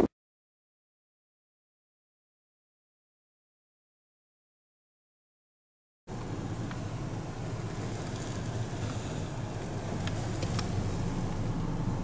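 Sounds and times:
car running low rumble: 6.1s - 12.0s
faint light ticks: 6.6s - 6.8s, 10.0s - 11.4s.

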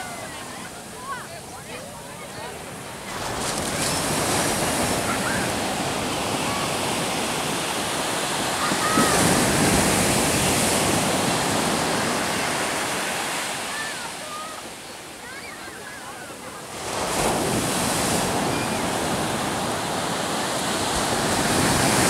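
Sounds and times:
waves breaking on a beach: 0.0s - 22.0s.

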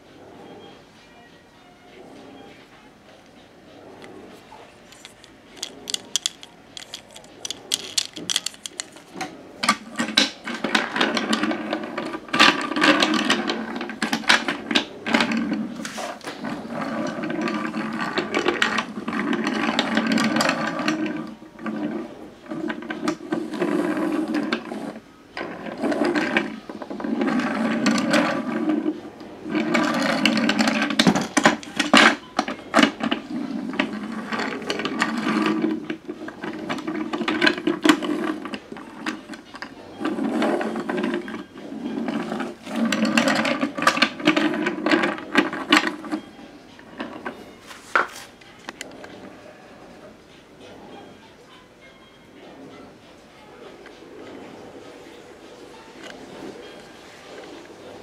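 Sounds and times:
wooden toy train wheels rumbling: 4.0s - 46.3s
clicks and clacks: 4.8s - 11.4s.

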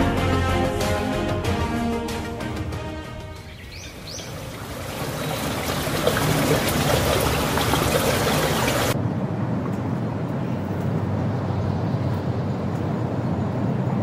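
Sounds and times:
dull steady outdoor noise: 3.4s - 14.0s
stream trickling over rocks: 3.6s - 9.0s.

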